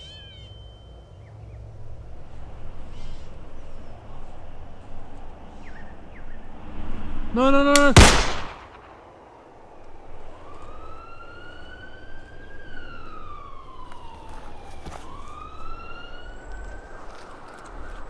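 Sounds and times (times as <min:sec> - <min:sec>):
emergency vehicle siren wailing: 0:09.5 - 0:18.0.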